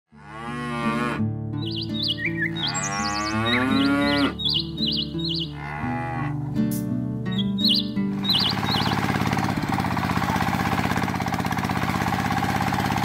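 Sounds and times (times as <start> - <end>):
cows mooing: 0.1 - 6.6
light background music: 0.6 - 9.3
birds warbling chirps: 1.6 - 5.8, 7.3 - 9.8.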